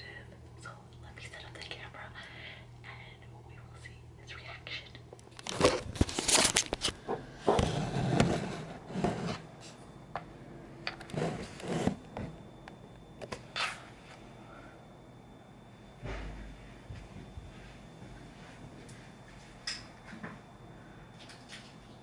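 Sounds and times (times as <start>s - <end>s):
scraping and rustling handling noises: 5.3s - 9.8s.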